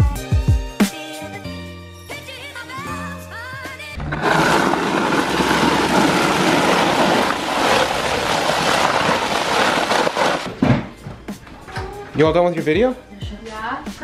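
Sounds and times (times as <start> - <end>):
snow shovel scraping asphalt: 4.0 - 10.5.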